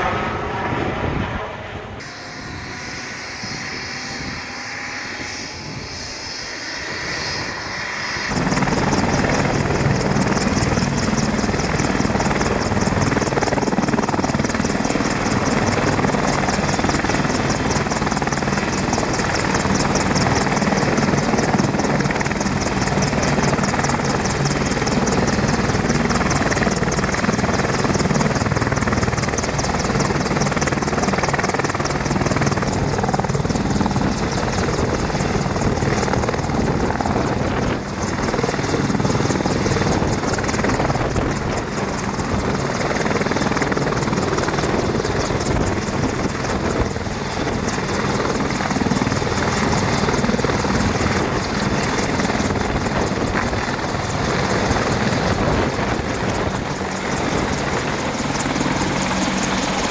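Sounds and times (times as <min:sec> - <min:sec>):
helicopter engines and rotor: 0:00.0 - 0:59.9.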